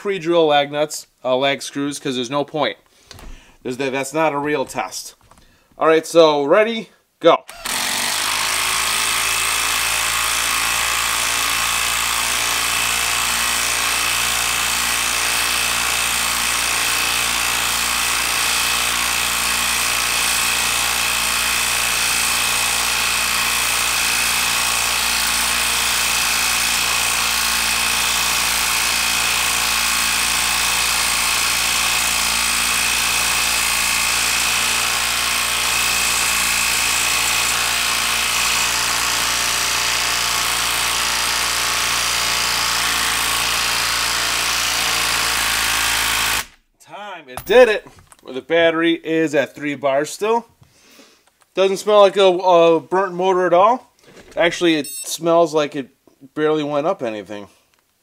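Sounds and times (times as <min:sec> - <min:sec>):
impact driver hammering: 0:07.5 - 0:46.6, 0:47.4 - 0:48.2.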